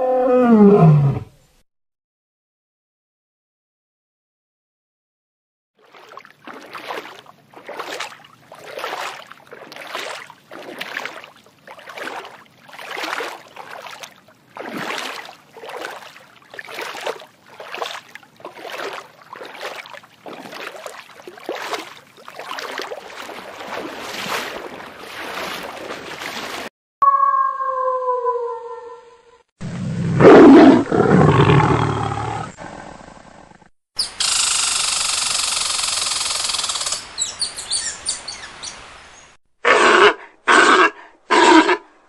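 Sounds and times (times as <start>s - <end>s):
water splashing rhythmically: 5.8s - 26.7s.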